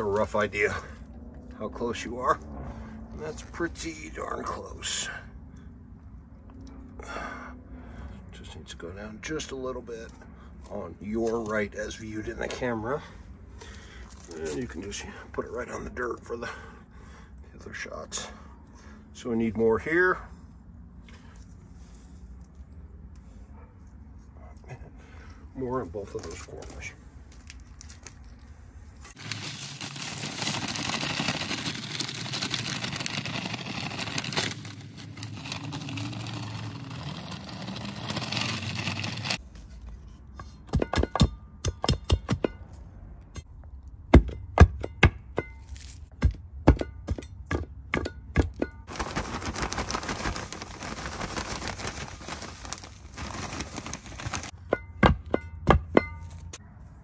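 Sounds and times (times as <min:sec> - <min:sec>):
sand scraping and pouring: 0:00.0 - 0:01.0, 0:14.2 - 0:15.0, 0:29.0 - 0:39.4, 0:48.9 - 0:54.6.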